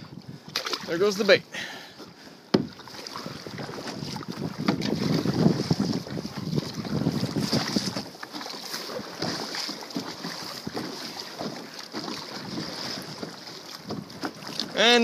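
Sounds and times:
wind buffeting microphone: 0.0s - 0.7s, 2.5s - 8.1s
water splashing against kayak hull: 0.0s - 15.0s.

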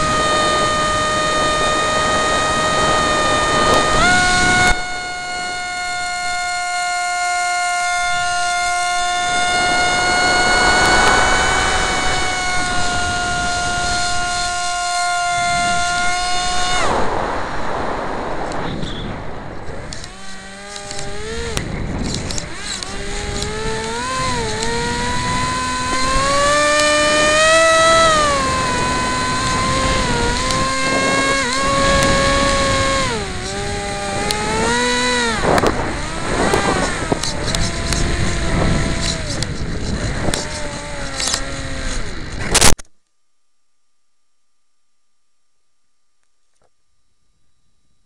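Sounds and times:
electric propeller motor whining: 0.0s - 42.8s
wind rushing: 8.9s - 14.7s, 15.3s - 40.4s.

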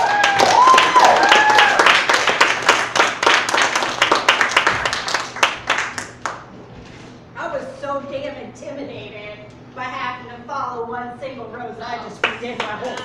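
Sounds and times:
audience clapping: 0.0s - 6.5s, 12.2s - 13.0s.

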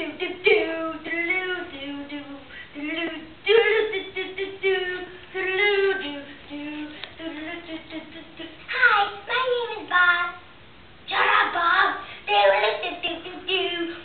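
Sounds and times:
child singing: 0.0s - 10.5s, 11.1s - 14.0s.

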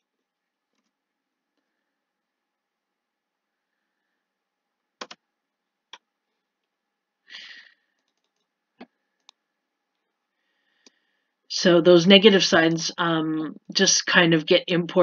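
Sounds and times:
mouse and keyboard clicks: 5.0s - 5.2s.

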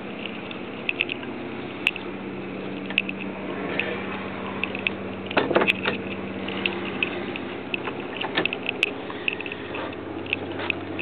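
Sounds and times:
steady low hum: 0.0s - 11.0s
handling clicks and knocks: 4.6s - 11.0s.

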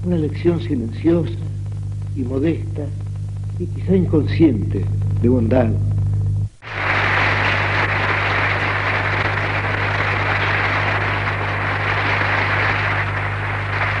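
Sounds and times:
mains hum: 0.0s - 14.0s
audience applauding: 6.6s - 14.0s.

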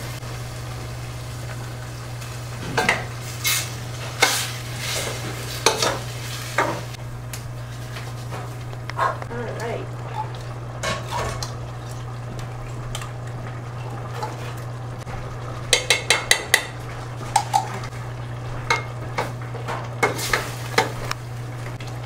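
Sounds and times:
pot sizzling: 0.0s - 22.0s
ladle clinking against a pot: 15.7s - 16.8s.

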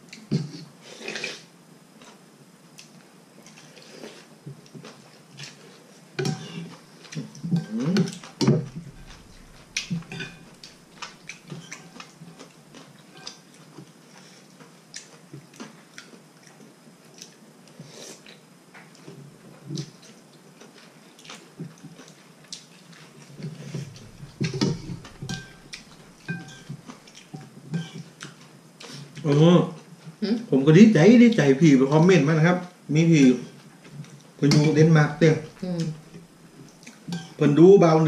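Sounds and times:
slurping noodles and broth: 0.9s - 1.5s
chewing: 6.4s - 19.1s, 19.7s - 29.3s.

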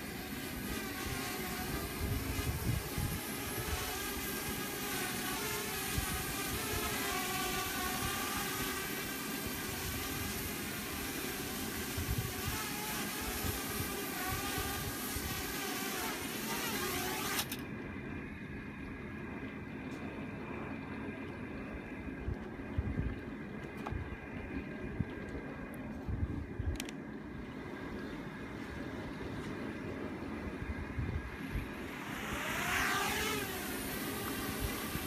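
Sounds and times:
wind rumble on microphone: 0.0s - 17.4s, 19.8s - 35.0s
quadcopter propellers whining: 0.0s - 17.6s, 31.2s - 35.0s.

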